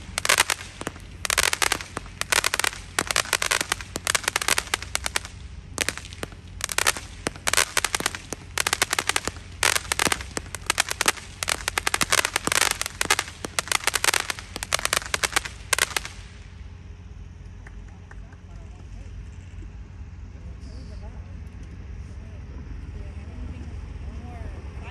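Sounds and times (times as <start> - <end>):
fireworks crackling pops: 0.0 - 19.0.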